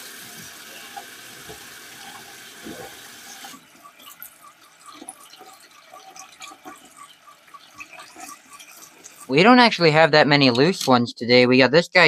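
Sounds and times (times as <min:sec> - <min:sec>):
water splashing and dripping: 0:00.0 - 0:09.3
tap water running into sink: 0:00.0 - 0:09.4.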